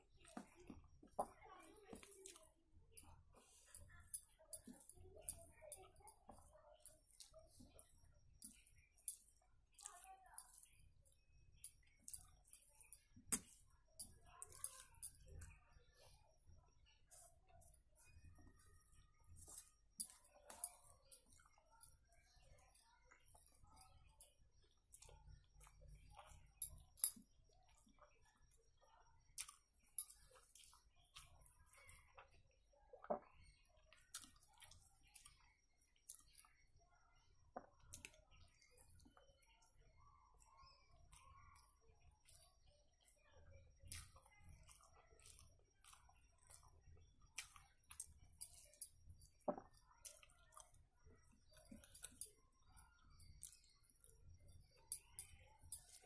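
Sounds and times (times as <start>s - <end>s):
person chewing food: 29.4s - 36.6s, 43.8s - 52.4s, 53.0s - 56.0s.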